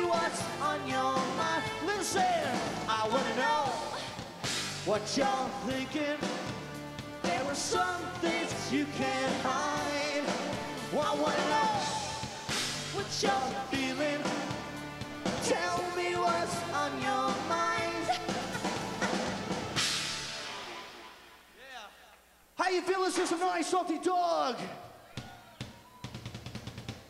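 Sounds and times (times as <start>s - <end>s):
person singing: 0.0s - 4.3s, 4.9s - 6.4s, 7.2s - 14.6s, 15.4s - 19.3s
drum kit: 0.0s - 21.7s, 25.1s - 27.0s.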